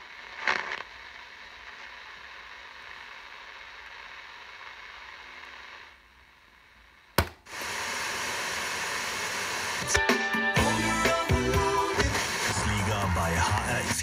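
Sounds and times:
radio between-station hiss: 0.0s - 14.0s
radio static hiss: 0.0s - 14.0s.

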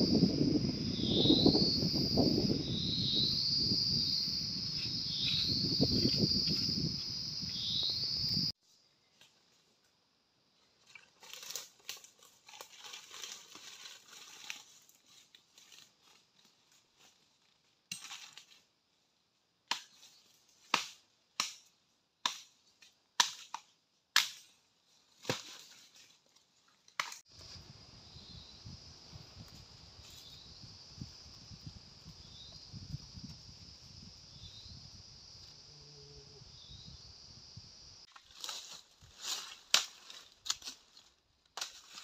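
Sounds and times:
dry leaves crackling and rustling: 11.2s - 17.4s, 38.1s - 42.0s
twigs snapping: 26.8s - 27.2s, 38.1s - 42.0s.

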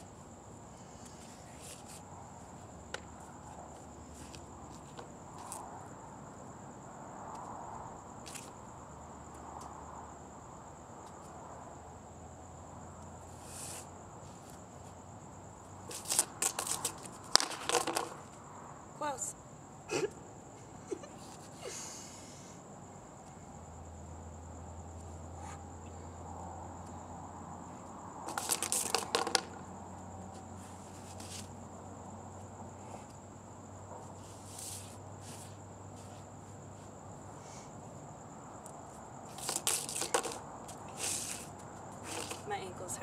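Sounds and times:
hula hoop rattling on concrete: 15.8s - 18.4s, 28.2s - 29.8s, 39.3s - 43.0s.

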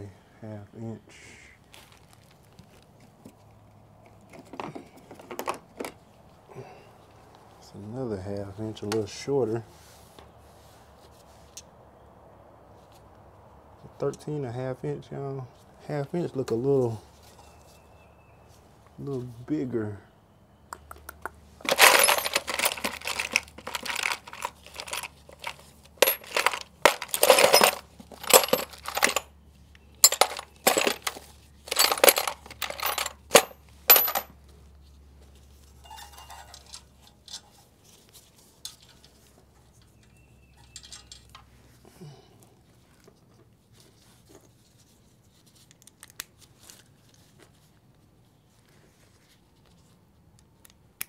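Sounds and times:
faint handling sounds: 1.6s - 11.8s, 21.5s - 50.8s
metal sockets clinking: 21.6s - 29.3s, 30.0s - 34.3s, 35.8s - 37.6s, 38.6s - 41.5s.

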